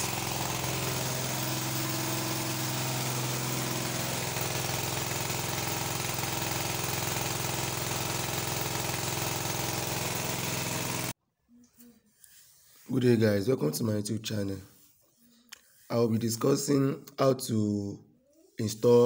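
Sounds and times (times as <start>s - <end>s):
generator engine running steadily: 0.0s - 11.1s.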